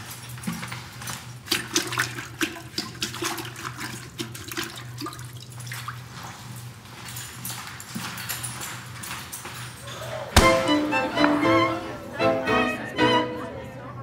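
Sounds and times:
water splashing in toilet bowl: 1.5s - 6.0s.

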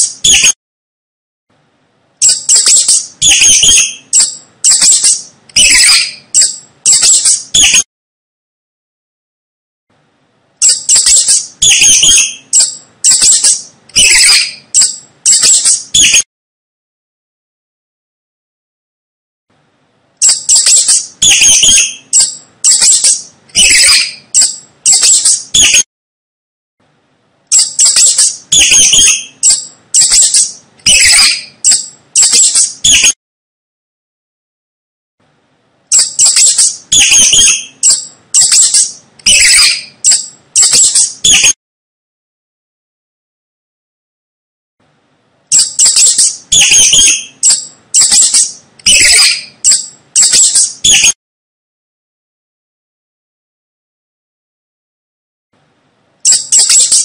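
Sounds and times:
mice squeaking: 0.0s - 0.6s, 2.2s - 7.8s, 10.6s - 16.2s, 20.2s - 25.8s, 27.5s - 33.2s, 35.9s - 41.6s, 45.5s - 51.2s, 56.2s - 57.0s.

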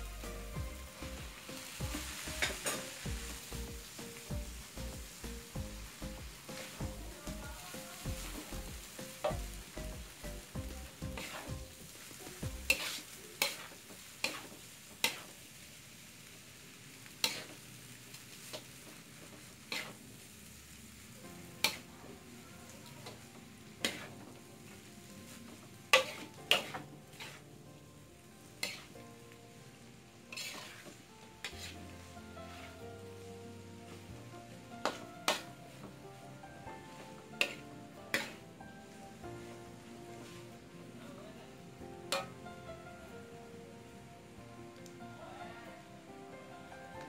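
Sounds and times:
frying sizzle: 0.0s - 47.0s
metal spatula scraping a wok: 0.9s - 4.2s, 11.0s - 11.8s, 12.6s - 15.4s, 17.2s - 17.6s, 19.7s - 20.0s, 21.6s - 21.8s, 23.8s - 24.2s, 25.9s - 27.4s, 28.6s - 29.0s, 30.3s - 32.9s, 34.8s - 35.6s, 36.9s - 38.5s, 42.1s - 42.3s.

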